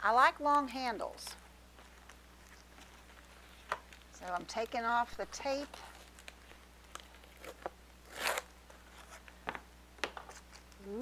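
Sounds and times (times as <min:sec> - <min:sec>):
tape peeling off packaging: 0:05.6 - 0:09.2.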